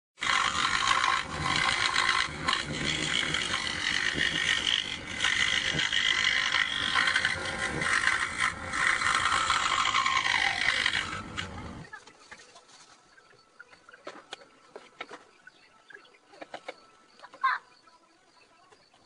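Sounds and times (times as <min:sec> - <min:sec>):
power tool cutting wood: 0:00.2 - 0:11.9.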